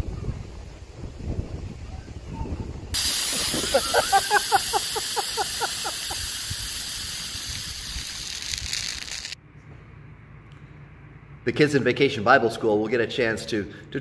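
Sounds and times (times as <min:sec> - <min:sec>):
soda spraying hiss: 0:02.9 - 0:09.4.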